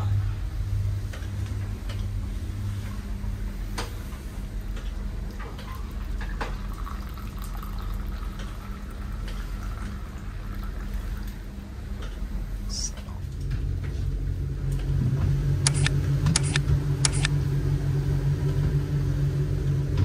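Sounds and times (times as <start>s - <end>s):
steady low hum: 0.0s - 20.0s
tea pouring into paper cup: 5.7s - 11.5s.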